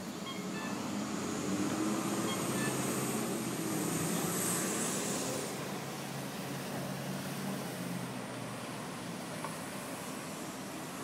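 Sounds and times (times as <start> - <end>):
vehicle passing by: 0.3 - 8.7.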